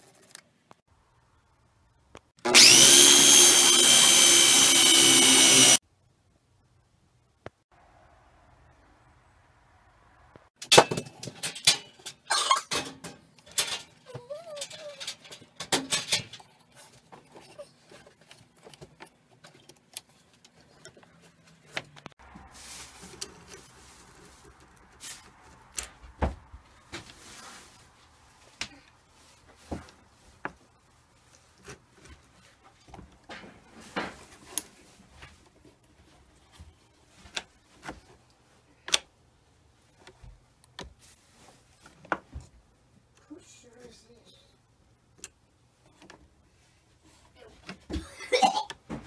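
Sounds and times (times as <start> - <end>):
hands handling plastic and metal tool: 10.7 - 39.1.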